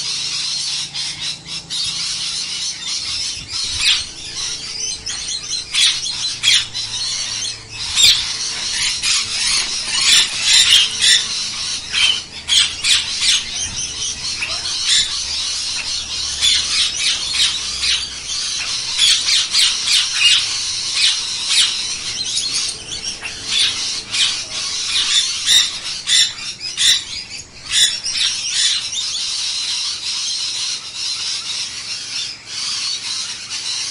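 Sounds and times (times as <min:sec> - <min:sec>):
parakeets squawking and chirping: 0:00.0 - 0:33.9.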